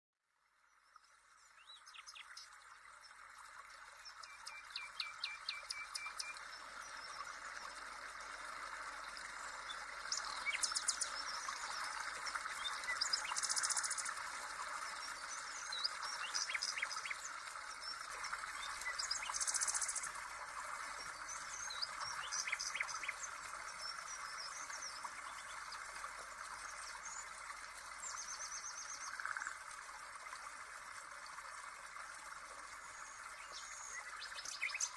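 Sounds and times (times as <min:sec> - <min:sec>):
birds chirping and trilling: 0:09.1 - 0:14.1, 0:21.0 - 0:25.6, 0:33.0 - 0:34.9.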